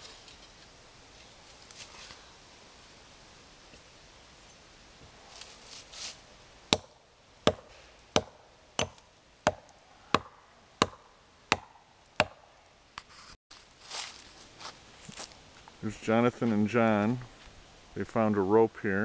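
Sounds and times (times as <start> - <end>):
hatchet chopping tree trunk: 6.7 - 12.5.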